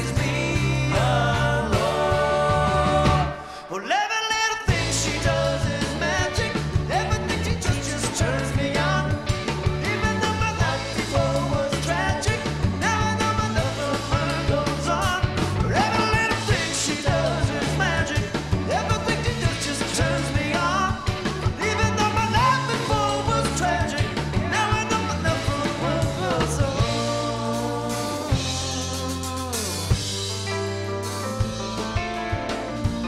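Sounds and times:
bass guitar: 0.0s - 3.6s, 4.7s - 33.0s
drum kit: 0.0s - 3.6s, 4.5s - 33.0s
electric guitar: 0.0s - 3.7s, 4.6s - 33.0s.

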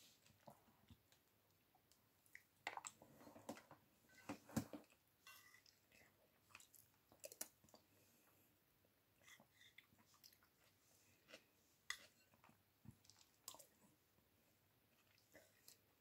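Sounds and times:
close-up chewing: 9.2s - 13.9s.

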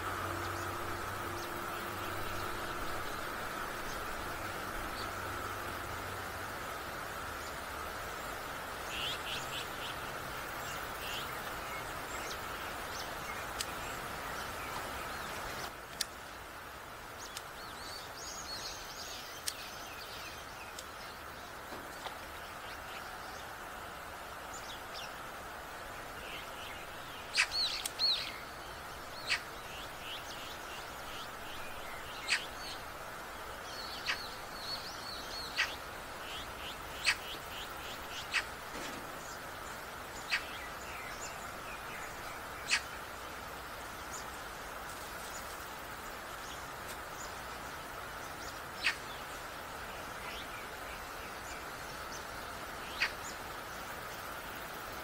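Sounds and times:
birds calling and chirping: 0.0s - 55.0s
outdoor background hiss: 0.0s - 55.0s.

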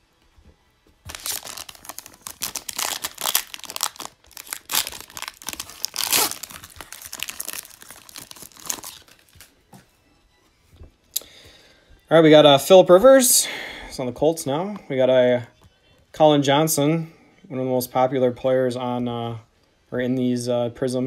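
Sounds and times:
foil wrapper crinkling: 1.0s - 9.5s.

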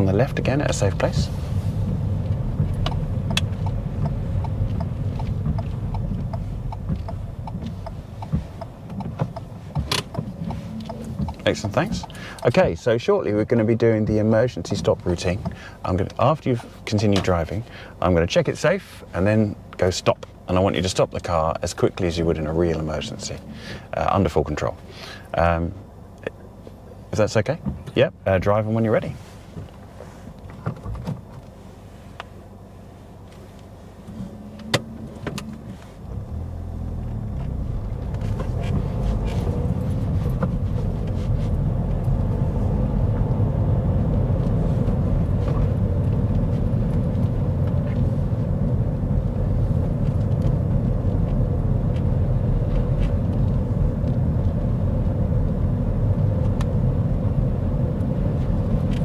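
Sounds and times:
car engine driving: 0.0s - 59.0s
clicks inside car: 1.8s - 12.6s.

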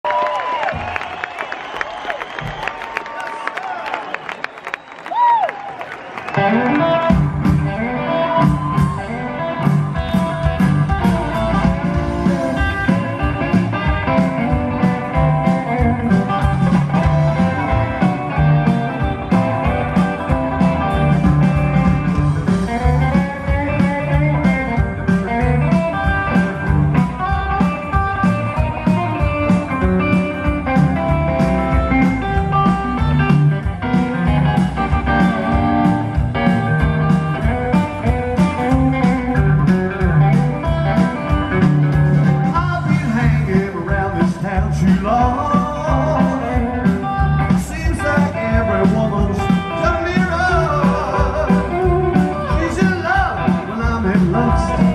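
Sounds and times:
electric guitar lead: 6.1s - 54.9s
drum kit: 6.2s - 54.9s
upright double bass: 9.6s - 54.9s.

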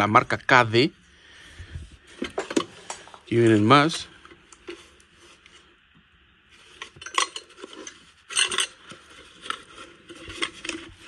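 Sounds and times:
metal tools clinking: 6.8s - 9.7s.

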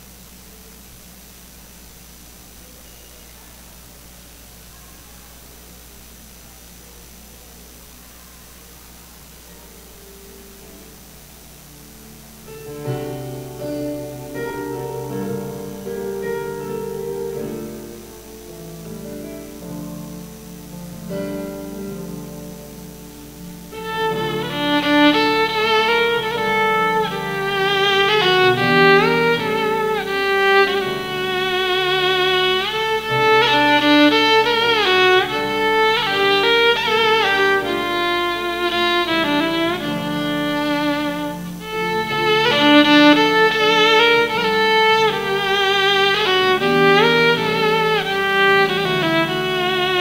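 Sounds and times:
solo violin melody: 12.4s - 50.0s.

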